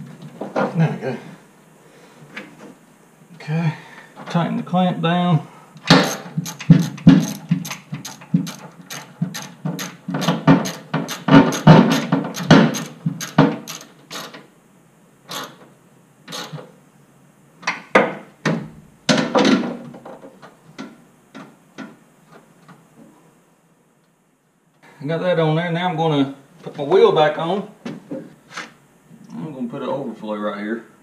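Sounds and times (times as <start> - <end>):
ratchet clicking: 6.0 - 14.4, 15.3 - 15.6, 16.3 - 16.6.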